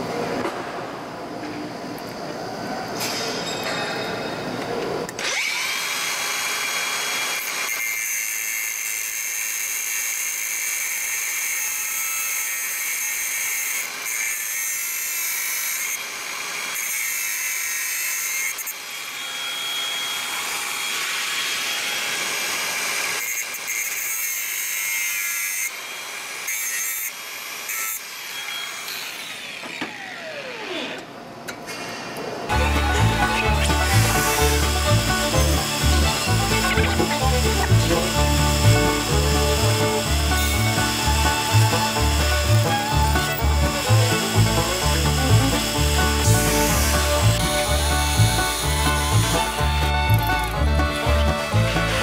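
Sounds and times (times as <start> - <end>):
grinder motor winding down: 5.1 - 7.8, 28.4 - 31.1, 32.5 - 52.0
angle grinder grinding steel: 5.1 - 31.0, 32.5 - 52.0.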